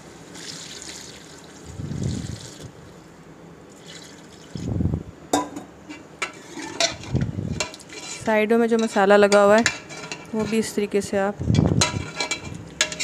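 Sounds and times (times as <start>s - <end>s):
water pouring into a pot: 0.3s - 2.7s, 3.7s - 4.7s.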